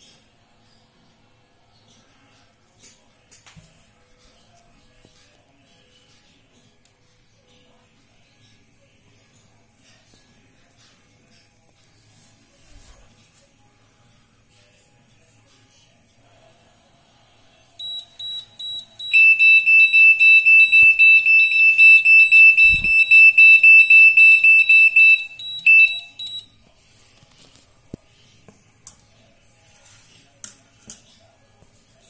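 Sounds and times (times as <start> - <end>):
thermometer alarm beeping: 17.8 - 26.5.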